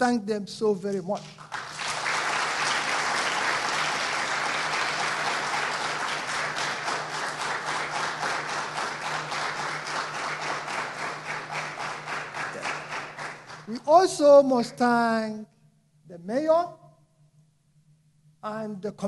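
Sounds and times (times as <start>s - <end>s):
audience applauding: 1.4s - 13.8s.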